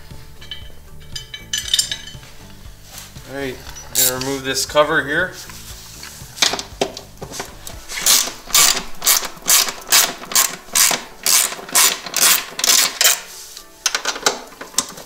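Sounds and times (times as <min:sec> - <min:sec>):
socket ratchet clicking: 0:08.0 - 0:13.3.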